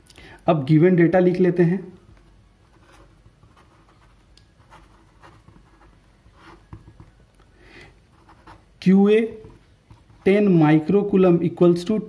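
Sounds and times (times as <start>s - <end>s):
pen scratching on paper: 2.6s - 7.1s, 8.1s - 8.6s.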